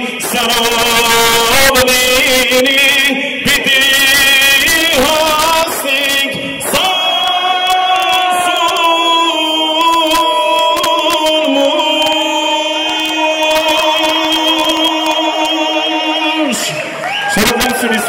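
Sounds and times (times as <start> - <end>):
loud amplified music: 0.0 - 18.0
man singing into microphone: 0.0 - 18.0.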